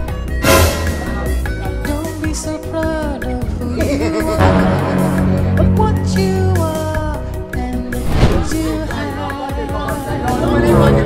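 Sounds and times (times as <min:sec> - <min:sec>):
background music with steady beat: 0:00.0 - 0:07.9, 0:08.6 - 0:11.0.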